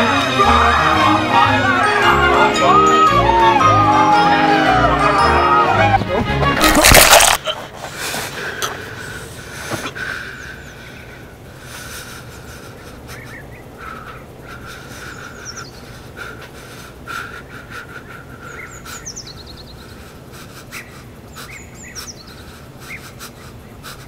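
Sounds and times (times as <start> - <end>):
birds chirping: 7.9 - 24.0.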